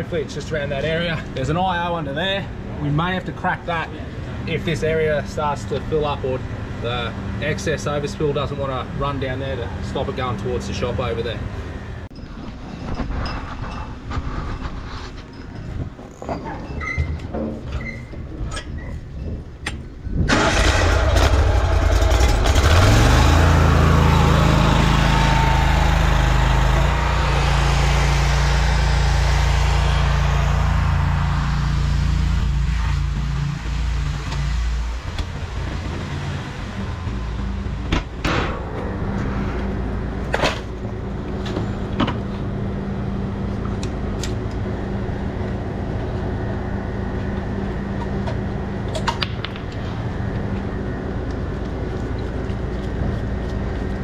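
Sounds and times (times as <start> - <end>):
engine starting and running: 19.7 - 51.9.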